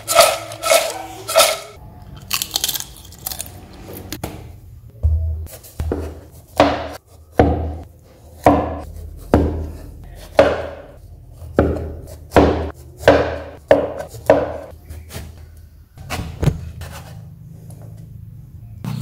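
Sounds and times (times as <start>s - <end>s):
cleaver chopping on wooden board: 5.9s - 7.8s, 10.3s - 10.9s, 11.6s - 14.7s.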